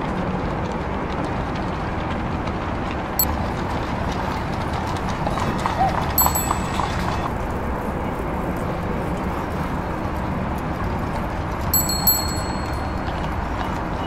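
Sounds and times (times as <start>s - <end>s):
low street noise: 0.0s - 14.0s
bicycle bell ringing: 6.2s - 7.2s, 11.7s - 13.3s.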